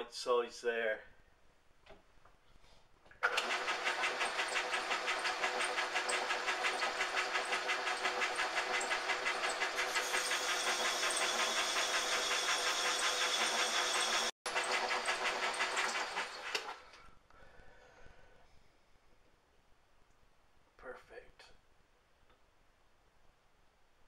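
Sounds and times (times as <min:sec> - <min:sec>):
metal lathe rattling: 0:03.2 - 0:16.8.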